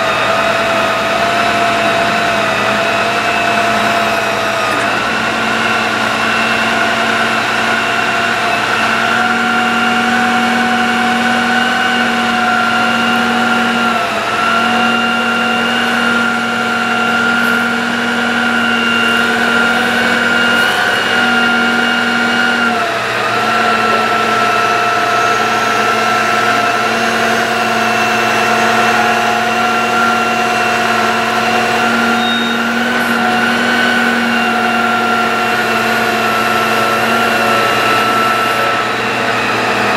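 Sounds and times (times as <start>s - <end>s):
hydraulic pump whine: 0.0s - 39.9s
truck engine running: 0.0s - 39.9s.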